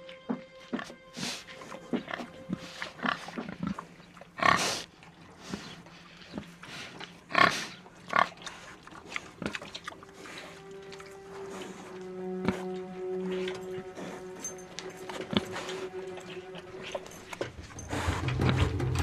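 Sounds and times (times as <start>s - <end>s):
low music drone: 0.0s - 4.2s, 9.1s - 19.0s
boar grunting and calling: 0.8s - 19.0s.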